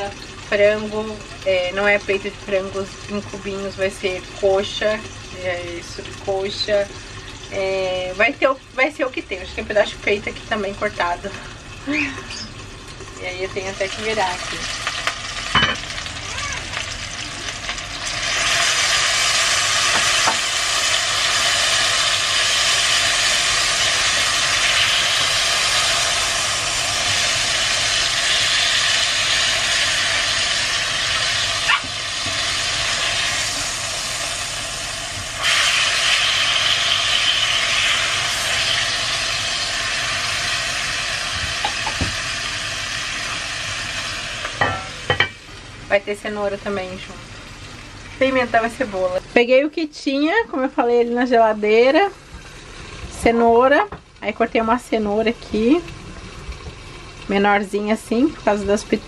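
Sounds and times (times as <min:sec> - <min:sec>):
chicken sizzling in a pot: 0:00.0 - 0:59.0.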